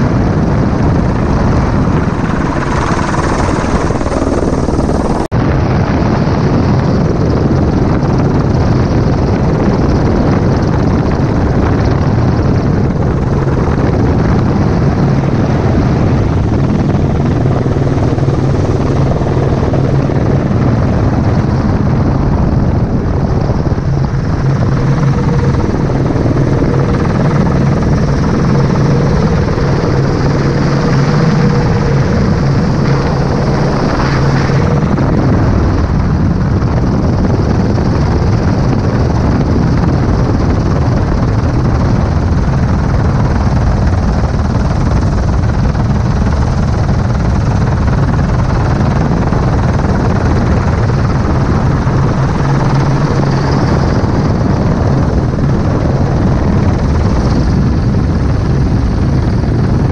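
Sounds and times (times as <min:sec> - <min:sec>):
helicopter rotor and engine drone: 0:00.0 - 0:59.9.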